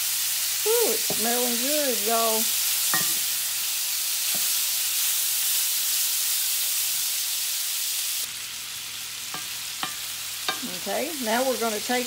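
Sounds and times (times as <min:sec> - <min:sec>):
meat sizzling in hot oil: 0:00.0 - 0:12.0.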